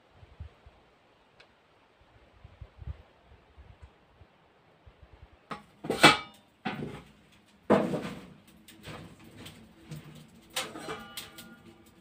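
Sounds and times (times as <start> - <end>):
irregular knocks and clatters: 5.5 - 12.0.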